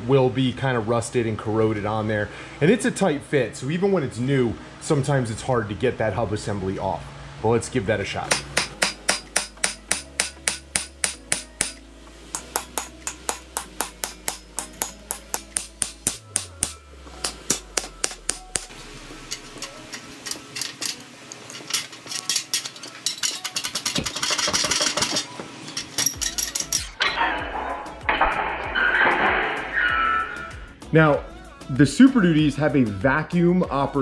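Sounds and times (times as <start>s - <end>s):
rapid hammer blows on steel: 8.3s - 18.8s
metal scraping: 19.3s - 30.8s.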